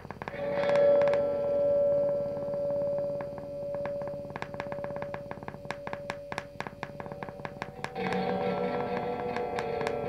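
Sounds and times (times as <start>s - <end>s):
fast patter of clicks: 0.0s - 1.2s, 3.2s - 10.0s.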